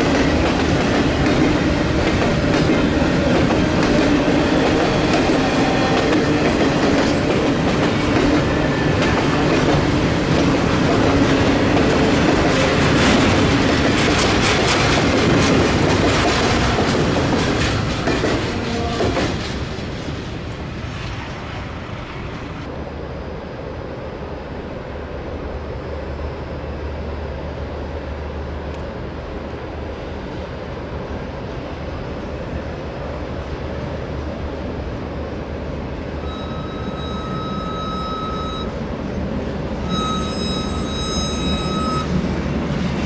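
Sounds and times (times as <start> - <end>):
wheels clicking over rail joints: 0.0 - 20.1
train rumble: 0.0 - 43.0.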